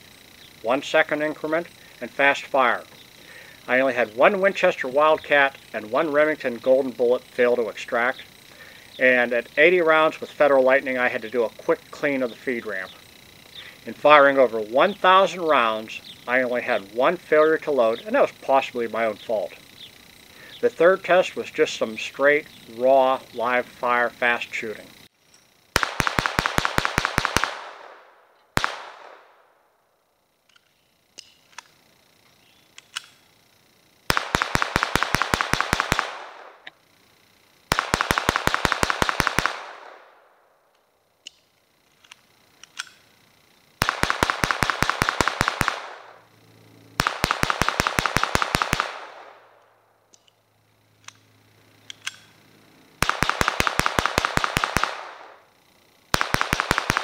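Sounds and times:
pistol firing rapidly: 25.8 - 28.0, 28.6 - 29.3, 34.1 - 36.6, 37.7 - 40.1, 43.8 - 46.2, 47.0 - 49.4, 53.0 - 55.4, 56.1 - 57.0
pistol clicks: 32.7 - 33.2, 40.7 - 43.0, 47.0 - 50.4, 51.0 - 52.4, 53.0 - 55.3, 56.1 - 57.0.

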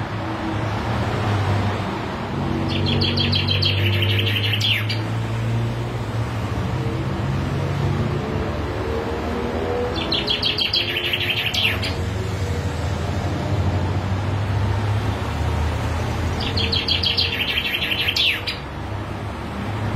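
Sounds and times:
chaffinch singing: 2.5 - 5.3, 9.7 - 12.5, 16.0 - 18.8.

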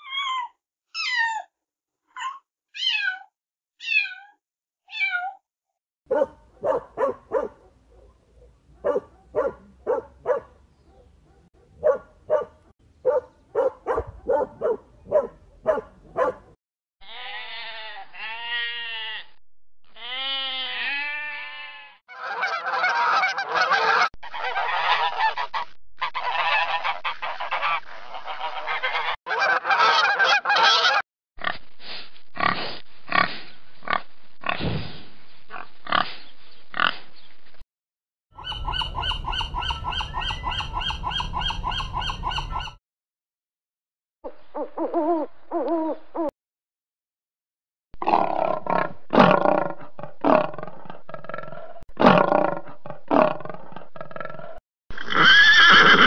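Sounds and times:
cat meowing: 2.8 - 5.4
dog barking: 6.1 - 16.6
waterfowl honking: 22.1 - 31.0.

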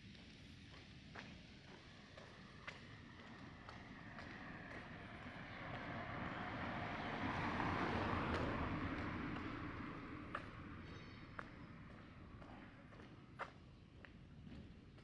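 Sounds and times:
road vehicle passing by: 3.0 - 13.0.

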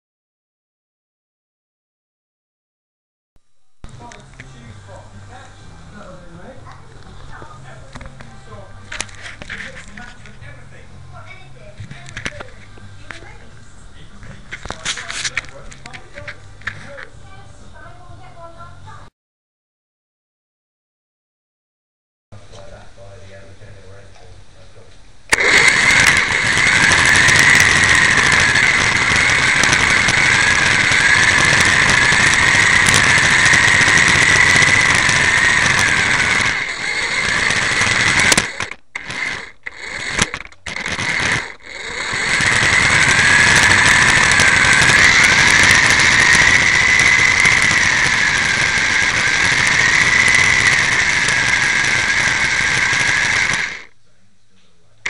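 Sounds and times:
toy car motor whining: 8.9 - 10.2, 25.3 - 53.9.

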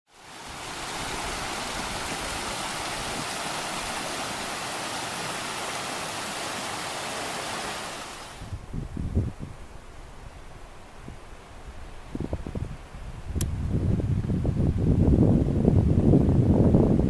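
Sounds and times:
stream rushing over rocks: 0.1 - 8.8.

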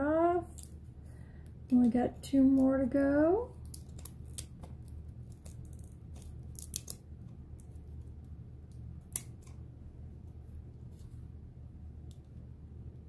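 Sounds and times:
low steady hum: 0.0 - 13.0
scissors snipping tape: 3.6 - 7.0, 8.7 - 9.6.

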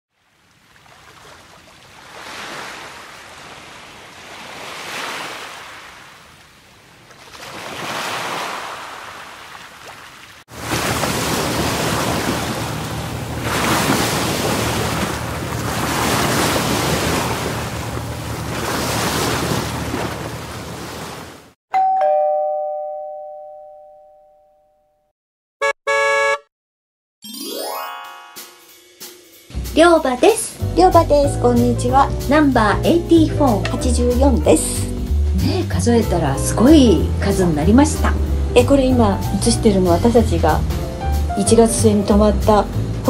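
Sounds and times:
waves surging and breaking: 0.2 - 21.6.

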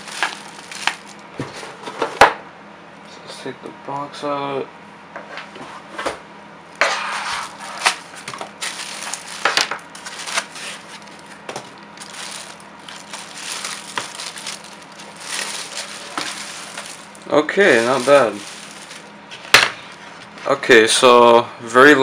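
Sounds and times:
plastic bag crinkling: 0.0 - 1.3, 8.4 - 19.2.

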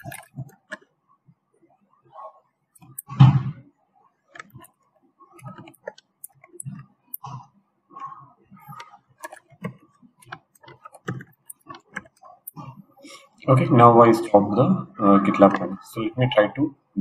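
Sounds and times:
keyboard typing: 0.0 - 0.9, 2.8 - 3.3, 4.3 - 13.0.

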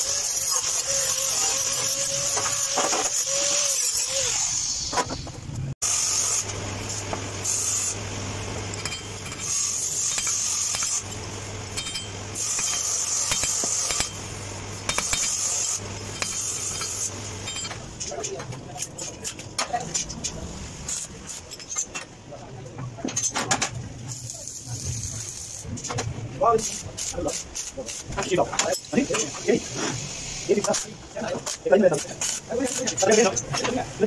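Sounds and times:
angle grinder on sheet steel: 0.0 - 4.7.

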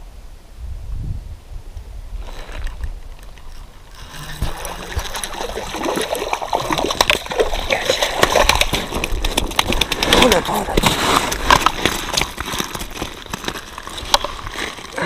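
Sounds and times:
fish splashing in water: 3.2 - 15.0.

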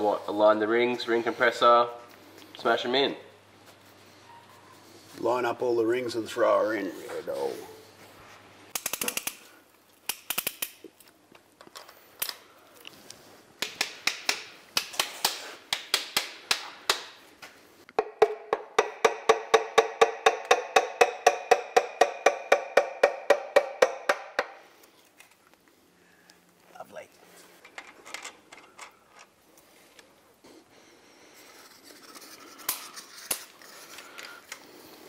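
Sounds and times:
woodblock-like percussive beat: 18.0 - 24.5.

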